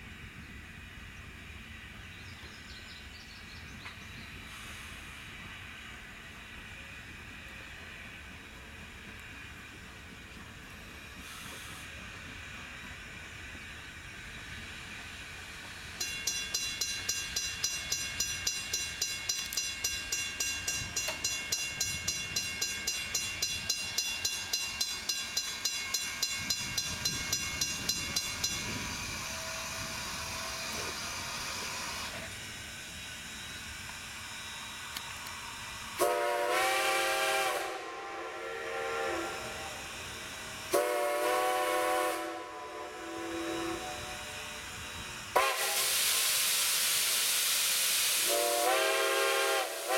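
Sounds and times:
steam hiss: 0.0 - 49.9
steam locomotive exhaust chuffs: 0.0 - 49.9
steam whistle chord: 36.0 - 44.6, 45.3 - 46.3, 48.2 - 49.9.

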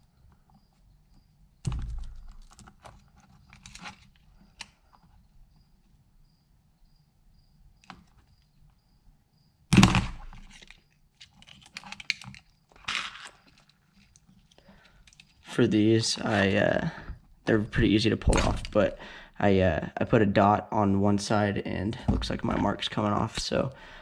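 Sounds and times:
small plastic clicks: 1.6 - 5.0, 9.8 - 15.5
fingers handling wires: 1.7 - 5.1, 10.3 - 15.5.

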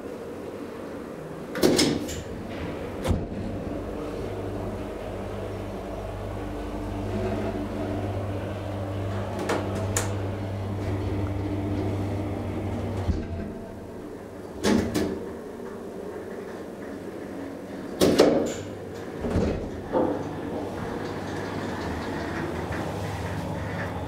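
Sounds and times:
elevator clunks: 1.5 - 24.0
hydraulic elevator hum: 2.2 - 24.0.

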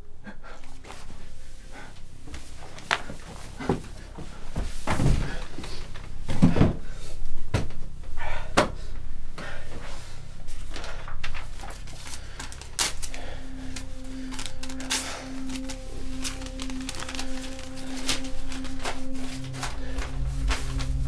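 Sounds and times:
low rumbling drone: 0.0 - 21.0
pulsing low synth note: 1.0 - 4.5, 10.1 - 21.0.

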